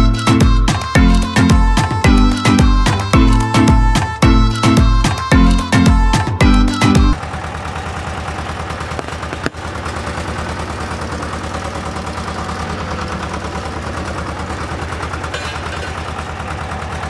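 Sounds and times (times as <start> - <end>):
road roller engine pulsing: 0.0 - 17.0
plastic lighter bursting crack: 8.9 - 9.6.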